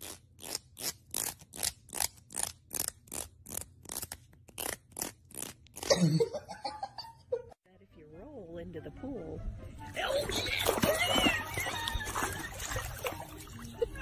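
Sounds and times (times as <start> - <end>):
cat gagging: 10.2 - 14.0.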